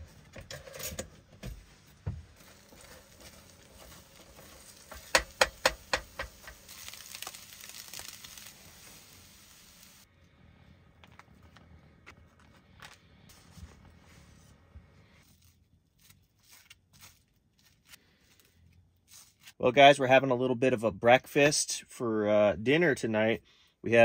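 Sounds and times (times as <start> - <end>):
eggs sizzling in a pan: 2.1 - 10.1.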